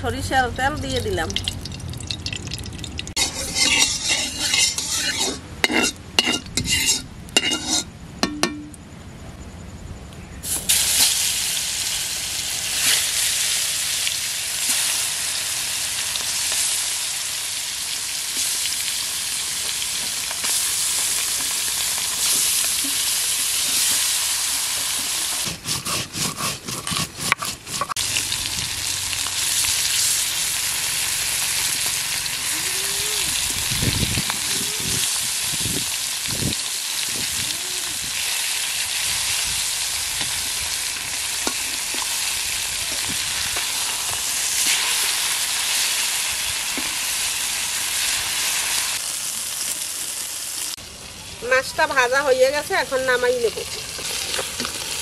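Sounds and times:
fish sizzling in hot oil: 0.9s - 7.8s, 10.4s - 55.0s
uneven crackling of oil: 0.9s - 7.9s.

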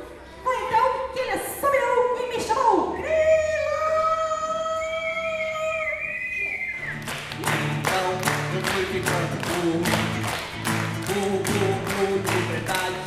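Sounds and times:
acoustic guitar strumming: 6.9s - 13.0s
children clapping: 7.0s - 13.0s.

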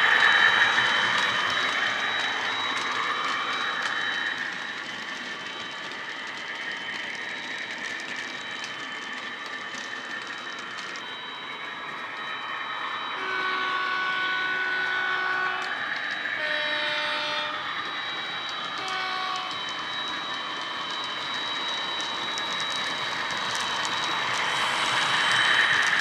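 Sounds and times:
model diesel locomotive running: 0.0s - 26.0s
two-tone train horn: 13.2s - 15.7s, 16.4s - 17.6s, 18.8s - 19.6s.

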